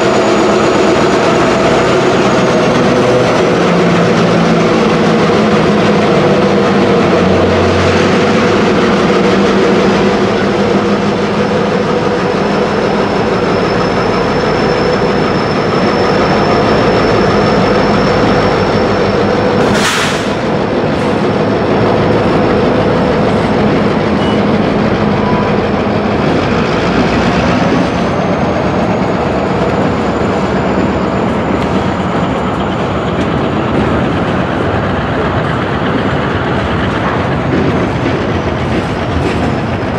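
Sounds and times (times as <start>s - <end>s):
train wheels clicking over rail joints: 0.0s - 39.9s
high wheel squeal: 8.6s - 35.5s
sharp metallic clank: 19.6s - 20.4s.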